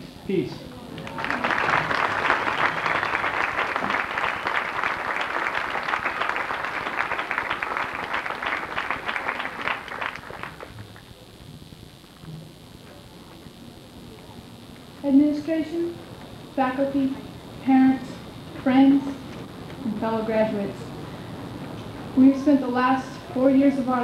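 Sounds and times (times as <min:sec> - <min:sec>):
audience applauding: 0:00.8 - 0:11.3.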